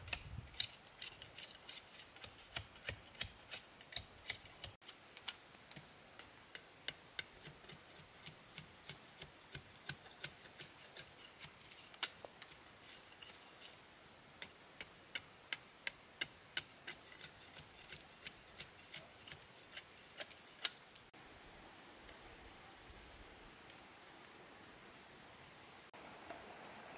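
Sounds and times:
hand tool clicks and snips: 0.1s - 12.2s.

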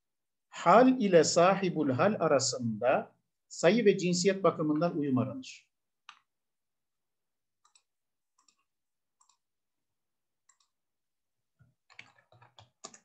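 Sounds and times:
computer mouse clicks: 6.0s - 6.4s, 7.6s - 9.5s, 10.4s - 10.8s, 11.6s - 13.0s
keyboard typing: 7.5s - 9.6s, 10.4s - 10.8s, 11.6s - 13.0s.

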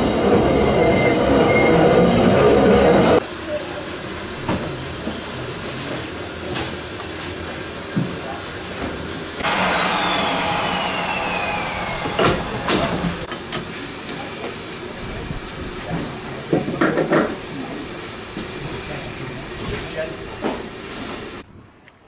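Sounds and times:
loud steam hiss: 9.2s - 15.8s
steam hissing: 9.4s - 14.9s.

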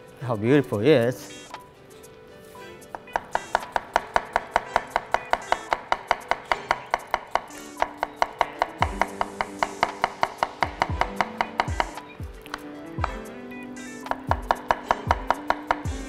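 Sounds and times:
knife chopping on wooden board: 2.9s - 13.2s, 14.0s - 16.0s.

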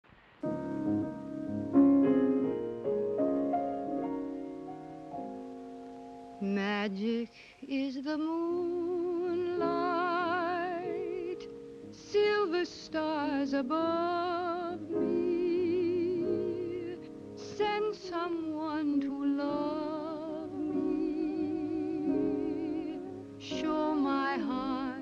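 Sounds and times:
piano playing held chords: 0.4s - 7.2s, 8.3s - 25.0s
woman singing with vibrato: 6.4s - 25.0s.

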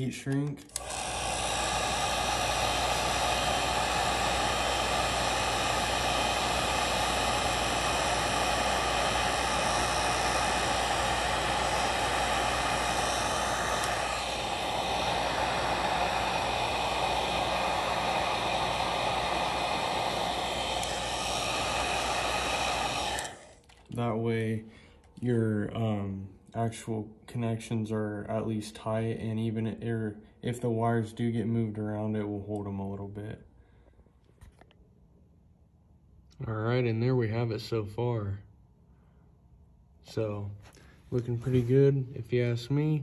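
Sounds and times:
hot-air blower running: 0.0s - 24.2s.

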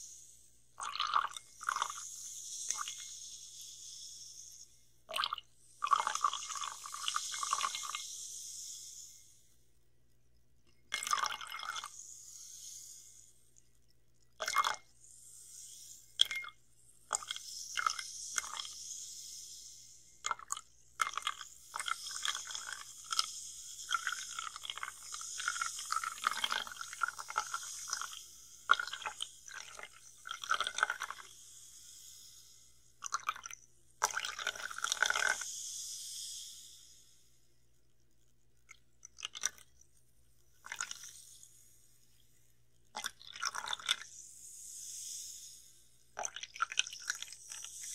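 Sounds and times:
carbonated water fizzing: 0.7s - 9.4s, 10.8s - 13.6s, 14.2s - 36.7s, 38.7s - 39.8s, 40.6s - 41.4s, 42.9s - 47.9s
clicks and splashes of pouring: 0.8s - 3.7s, 5.1s - 8.1s, 10.7s - 12.0s, 13.6s - 14.9s, 16.2s - 18.9s, 20.2s - 31.3s, 33.0s - 35.5s, 38.7s - 39.8s, 40.6s - 41.2s, 42.9s - 44.1s, 46.2s - 47.9s.

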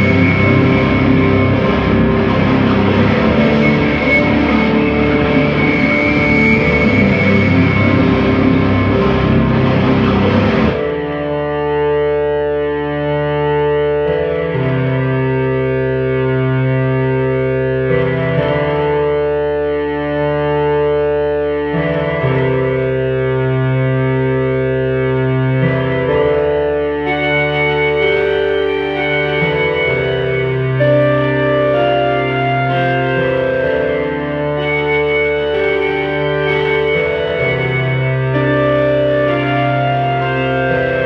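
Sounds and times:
dense noisy wash: 0.0s - 10.8s
keyboard sustained chords: 0.0s - 41.0s.

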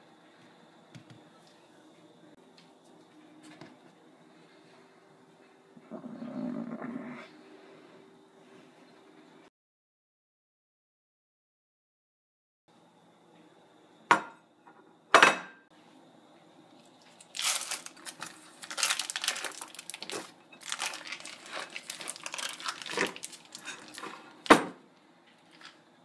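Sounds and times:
foil wrapper crinkling: 17.0s - 24.5s, 25.4s - 25.8s.

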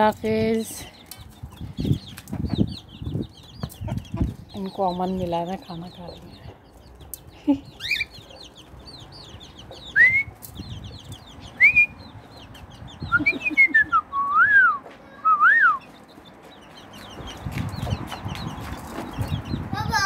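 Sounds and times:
chicks peeping: 0.0s - 20.0s
cockatiel whistling: 10.0s - 10.3s.

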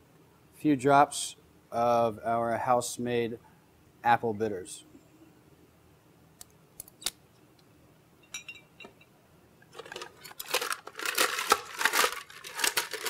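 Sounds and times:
barware clicking: 8.2s - 9.1s
ice cubes clattering: 9.7s - 13.0s.

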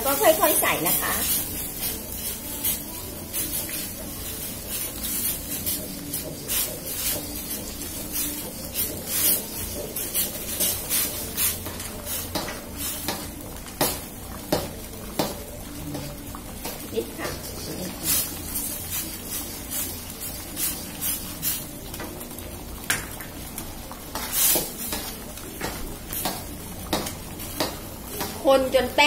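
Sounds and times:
spatula scraping metal wok: 0.0s - 13.2s
faint sizzle: 0.0s - 29.0s.

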